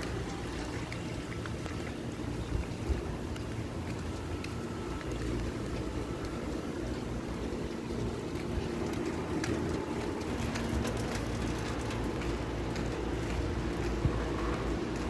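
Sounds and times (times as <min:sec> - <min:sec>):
faint steady hum: 0:00.0 - 0:15.0
light ticks: 0:00.0 - 0:15.0
wind buffeting microphone: 0:00.0 - 0:15.0.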